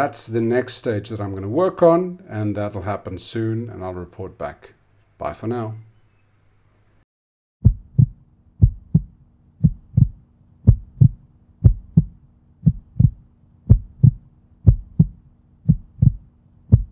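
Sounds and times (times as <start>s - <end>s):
heartbeat thumps: 7.6s - 16.9s.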